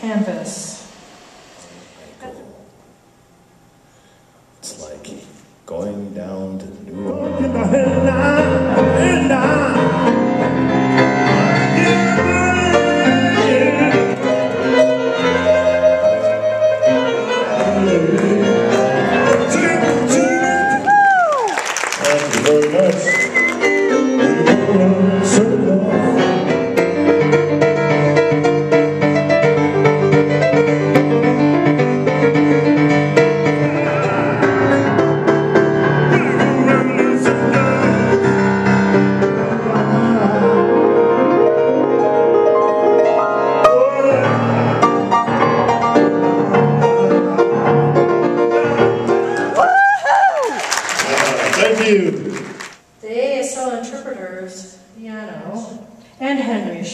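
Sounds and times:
man singing: 0:06.9 - 0:15.8, 0:17.0 - 0:20.9, 0:22.0 - 0:27.1, 0:33.4 - 0:41.3, 0:43.5 - 0:45.1
jazz piano: 0:07.2 - 0:21.0, 0:22.0 - 0:49.6.

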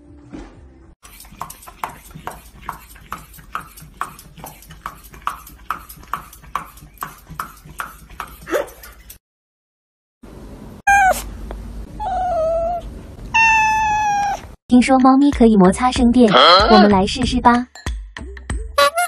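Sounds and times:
dog whimpering and yelping: 0:10.9 - 0:11.3, 0:12.0 - 0:14.5
dog whining: 0:10.9 - 0:11.3, 0:12.0 - 0:14.5.

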